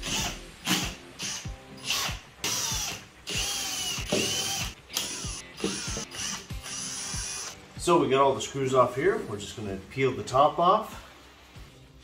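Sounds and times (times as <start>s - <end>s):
cordless driver motor whine: 2.6s - 7.6s.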